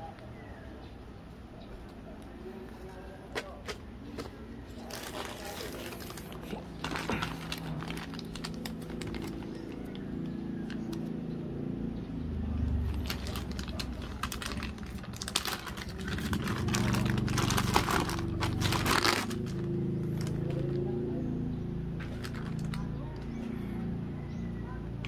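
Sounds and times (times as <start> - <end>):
plastic bags crinkling: 4.2 - 11.0, 12.8 - 20.8, 22.0 - 22.9.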